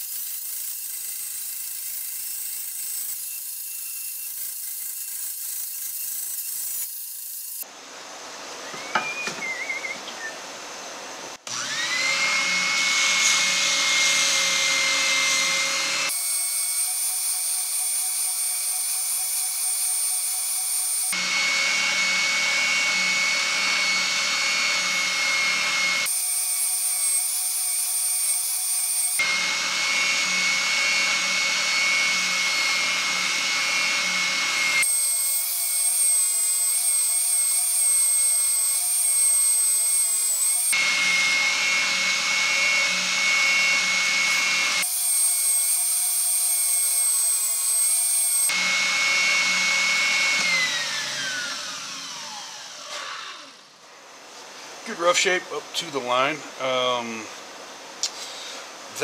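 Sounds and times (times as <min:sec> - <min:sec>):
motor winding down: 0:11.4 - 0:53.7
spindle sander whining: 0:11.4 - 0:53.7.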